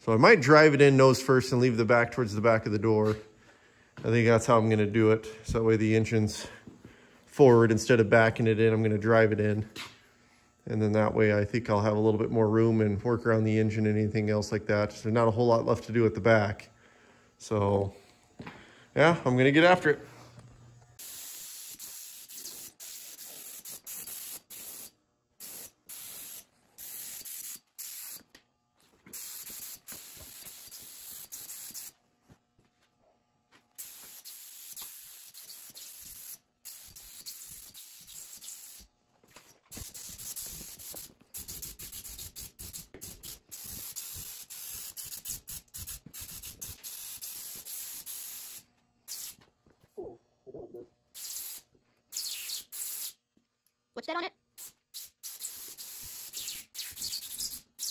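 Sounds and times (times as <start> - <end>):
paint spray gun hissing: 21.0 - 28.3, 29.0 - 32.0, 33.8 - 38.9, 39.7 - 49.4, 51.2 - 53.2, 54.6 - 57.9.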